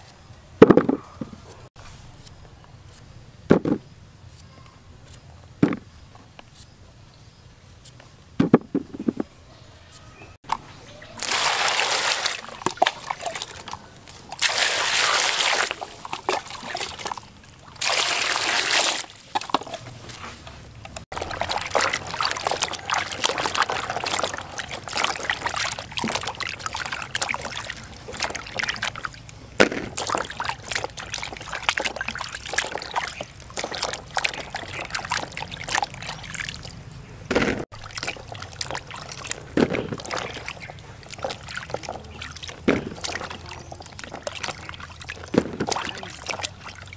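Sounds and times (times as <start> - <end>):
knocks: 8.4 - 9.3
water pouring into basin: 11.2 - 19.8, 21.1 - 36.8, 37.7 - 46.9
hands splashing in water: 11.2 - 20.0, 21.1 - 46.9.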